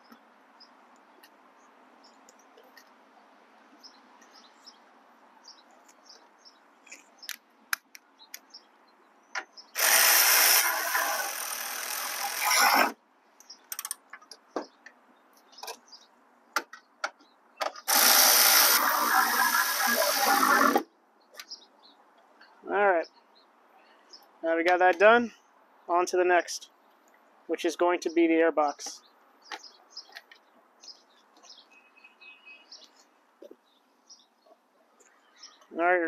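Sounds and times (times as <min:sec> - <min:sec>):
electric ratchet running: 0:09.8 - 0:13.0, 0:17.9 - 0:20.8.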